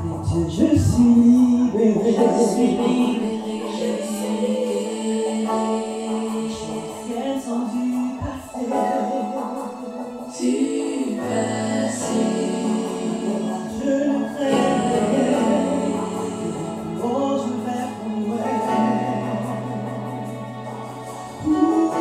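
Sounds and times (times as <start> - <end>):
woman singing gospel song: 0.5 - 9.1.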